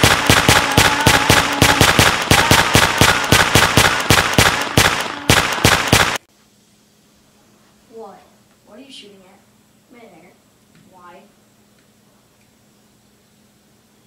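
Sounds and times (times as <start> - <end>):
rapid automatic gunfire: 0.0 - 6.2.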